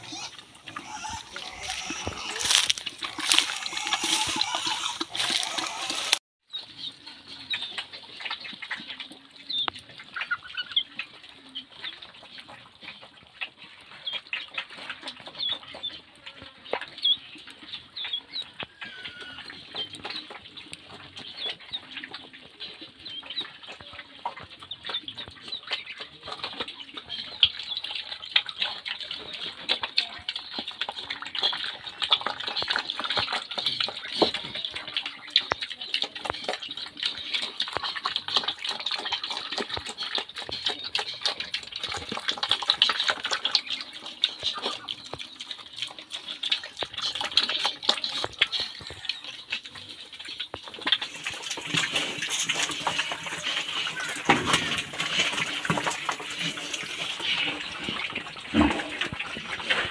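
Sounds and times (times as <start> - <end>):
duck or chicken calls: 0.0 - 6.2, 18.4 - 20.2
animals pecking and chewing feed: 0.0 - 59.9.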